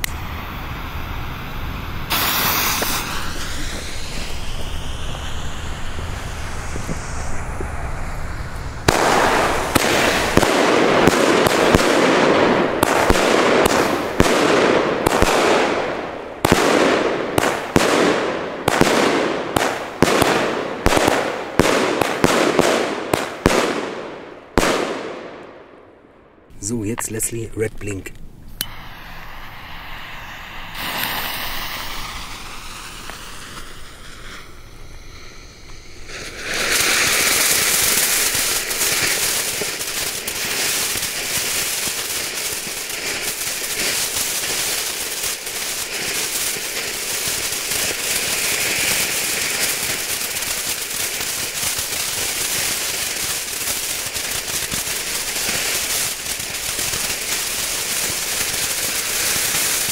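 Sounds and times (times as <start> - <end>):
fuse hissing: 0.0 - 8.8, 28.5 - 50.3
firework fountain crackling: 0.0 - 25.8, 26.5 - 59.9.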